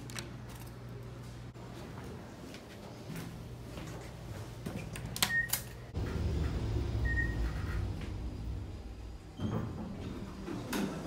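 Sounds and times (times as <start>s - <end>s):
elevator doors and car rumbling: 5.3s - 11.0s.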